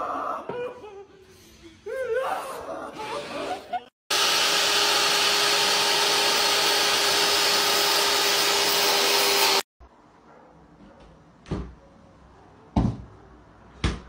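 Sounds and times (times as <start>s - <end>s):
electric slicer motor whining: 4.1s - 9.7s.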